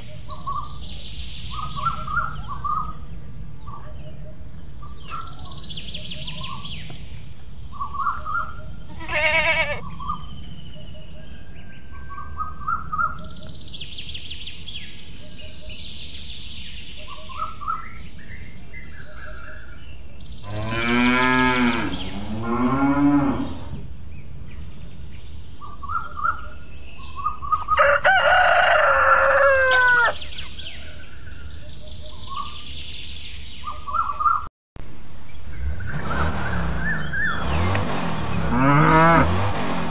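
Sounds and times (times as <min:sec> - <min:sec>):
small birds chirping: 0:00.0 - 0:28.0, 0:28.7 - 0:34.5, 0:35.2 - 0:39.9
cow mooing: 0:20.4 - 0:23.8, 0:38.3 - 0:39.5
rooster crowing loudly: 0:27.7 - 0:30.2.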